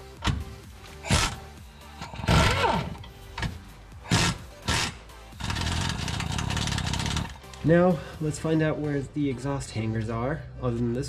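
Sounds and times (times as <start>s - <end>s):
background music: 0.0s - 11.0s
loud bursts of noise: 4.1s - 7.3s.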